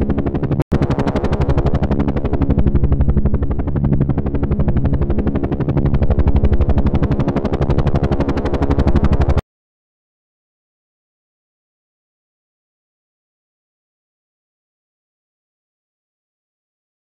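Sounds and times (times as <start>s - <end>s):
low hum: 0.0s - 9.4s.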